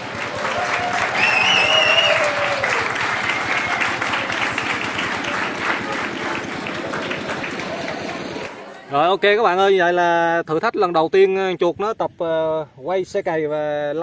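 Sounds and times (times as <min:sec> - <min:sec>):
applause: 0:00.0 - 0:08.6
high whistle: 0:01.2 - 0:02.4.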